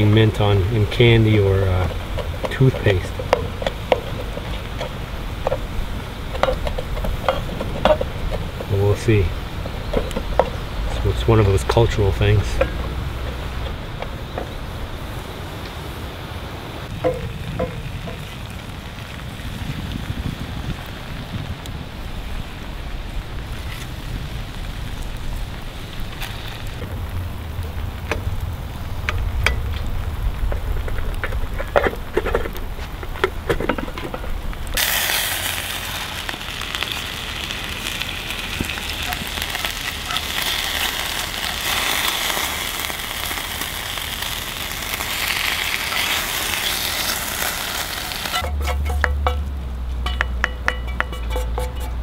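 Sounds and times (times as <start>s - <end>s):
fish frying in oil: 0.0s - 15.0s, 34.6s - 49.4s
wind on microphone: 0.0s - 34.8s
crackles and clicks: 0.0s - 52.0s.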